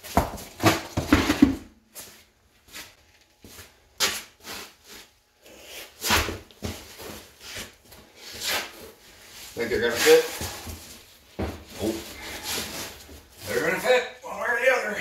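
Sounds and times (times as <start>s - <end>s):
footsteps on concrete: 0.0s - 5.1s
tire scuffing and knocking: 0.0s - 5.1s.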